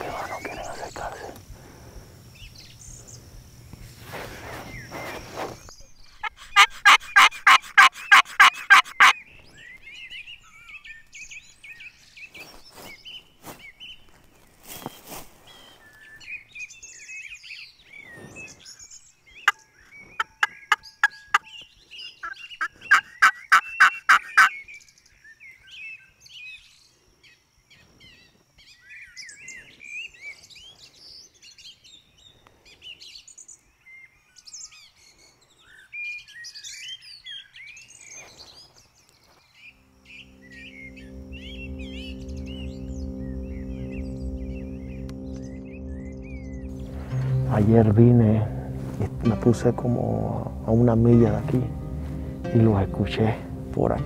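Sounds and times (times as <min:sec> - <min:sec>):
songbirds chirping: 0:00.0 - 0:54.0
wild turkey calling: 0:06.2 - 0:09.2, 0:19.4 - 0:24.6.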